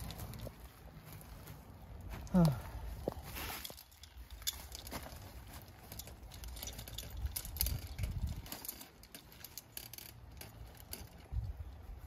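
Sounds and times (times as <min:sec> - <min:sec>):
metal pulleys clicking and rattling: 0:03.6 - 0:11.5.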